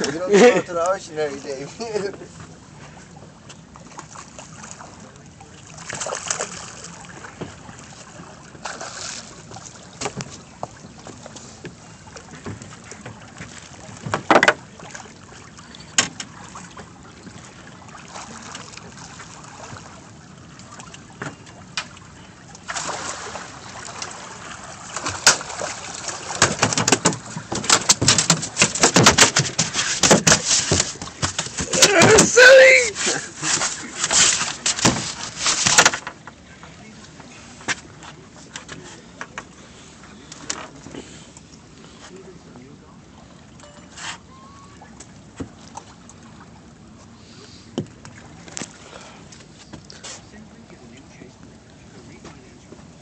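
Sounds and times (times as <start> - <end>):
water sloshing against boat hull: 0.0 - 53.0
sharp knocks: 26.4 - 32.4.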